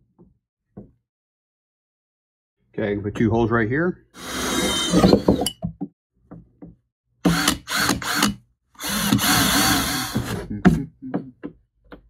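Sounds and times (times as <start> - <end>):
cordless drill cutting plastic: 4.2 - 5.5, 7.2 - 10.5.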